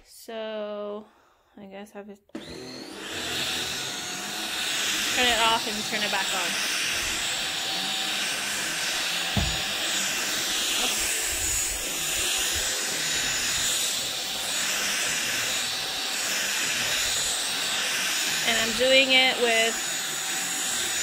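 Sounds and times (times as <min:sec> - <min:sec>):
vacuum cleaner running on rug: 0:02.4 - 0:21.0
short thump: 0:09.3 - 0:09.8.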